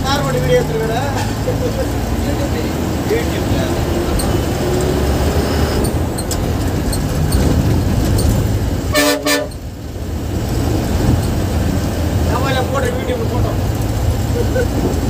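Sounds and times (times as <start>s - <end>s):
bus engine and road noise: 0.0s - 15.0s
vehicle horn blasts: 8.9s - 9.6s.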